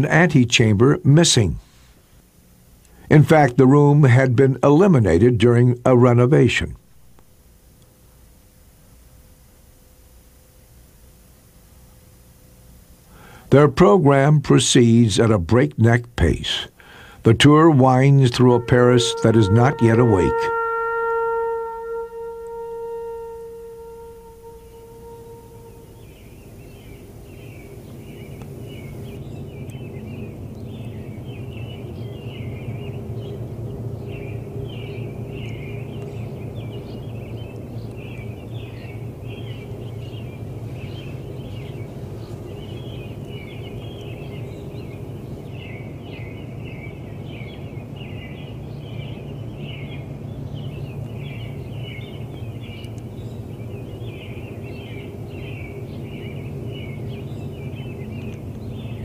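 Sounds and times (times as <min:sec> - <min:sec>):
birds chirping: 0:02.2 - 0:59.0
steady low rumble: 0:21.4 - 0:59.0.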